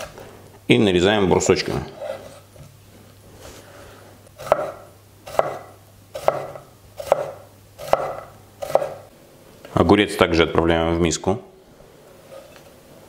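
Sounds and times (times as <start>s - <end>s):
knife tapping cutting board: 4.4s - 9.0s
knife slicing cucumber: 4.4s - 9.1s.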